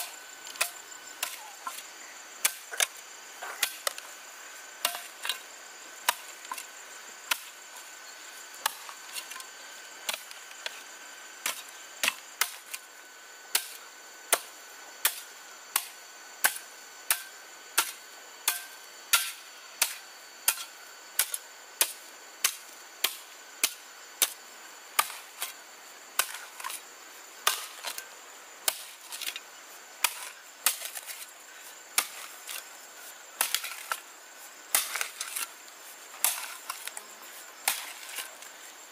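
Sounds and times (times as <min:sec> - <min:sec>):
insects trilling: 0:00.0 - 0:38.9
blade chopping wood: 0:04.8 - 0:05.4, 0:30.0 - 0:31.3, 0:33.4 - 0:34.0, 0:36.2 - 0:37.0, 0:37.6 - 0:38.5.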